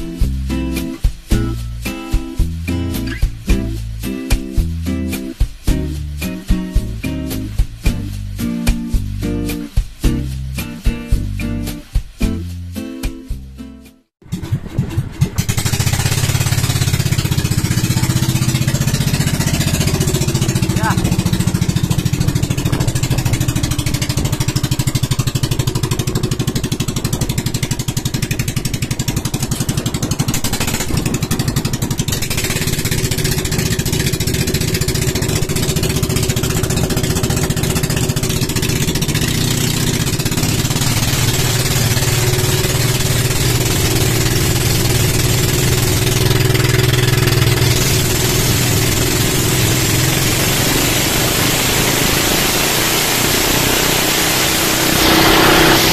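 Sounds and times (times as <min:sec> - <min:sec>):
boat engines running: 0:14.2 - 0:55.9
rush of water and wind: 0:20.5 - 0:24.9, 0:26.3 - 0:32.9, 0:48.0 - 0:55.9.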